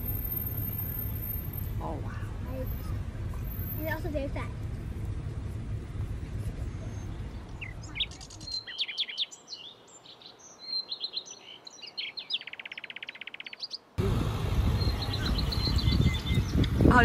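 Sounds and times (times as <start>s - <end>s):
loud rumbling noise: 0.0s - 8.0s, 14.0s - 17.0s
low rumble: 0.0s - 8.6s
birds chirping: 0.0s - 17.0s
fast bird trill: 6.7s - 13.8s, 14.8s - 16.6s.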